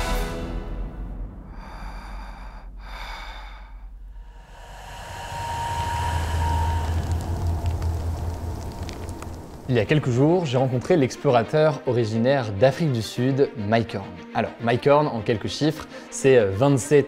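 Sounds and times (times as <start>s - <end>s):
low drone: 0.0s - 10.5s
filtered breathy whoosh: 1.0s - 9.6s.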